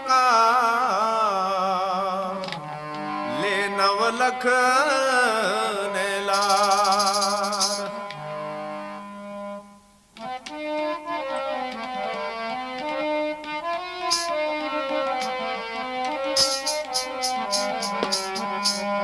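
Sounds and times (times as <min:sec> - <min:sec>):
light percussion: 0:06.3 - 0:07.9, 0:14.1 - 0:14.4, 0:15.0 - 0:15.4, 0:16.0 - 0:19.0.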